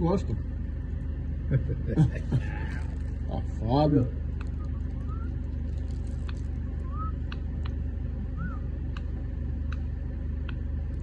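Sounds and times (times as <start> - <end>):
low hum: 0.0 - 11.0
bird chirps: 4.4 - 5.4, 8.4 - 8.7.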